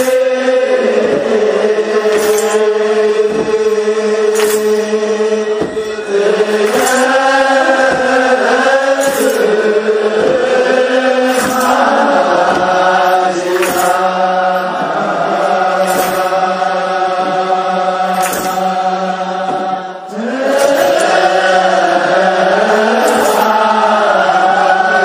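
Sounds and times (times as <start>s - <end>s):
men chanting in unison: 0.0s - 25.0s
sharp drum beats: 0.9s - 18.8s.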